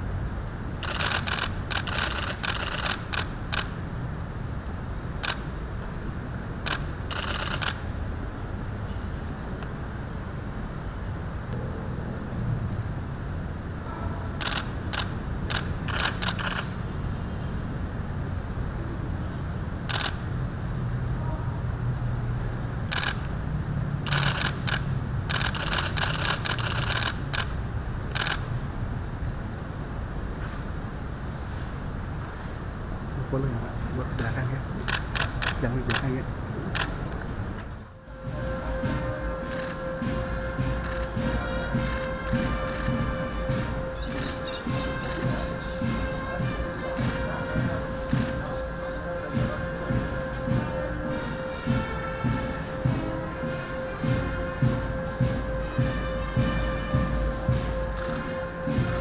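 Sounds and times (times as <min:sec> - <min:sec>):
camera shutters clicking: 0:00.8 - 0:03.8, 0:05.2 - 0:05.5, 0:06.7 - 0:07.8, 0:14.4 - 0:16.8, 0:19.9 - 0:20.2, 0:22.9 - 0:23.3, 0:24.1 - 0:27.5, 0:28.1 - 0:28.4, 0:34.8 - 0:36.0, 0:36.8 - 0:37.2.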